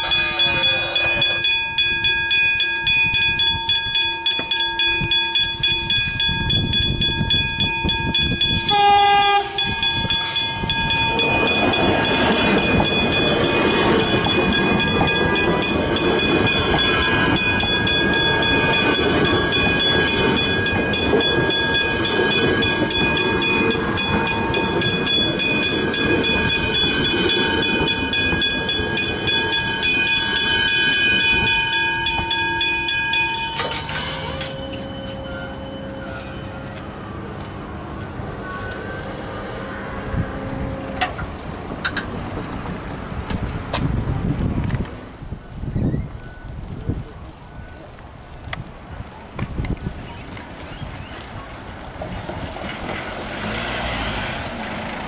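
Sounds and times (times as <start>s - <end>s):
level crossing bells ringing: 0.0s - 41.2s
electric train passing: 0.0s - 55.0s
train horn blast: 8.6s - 9.8s, 38.4s - 41.2s.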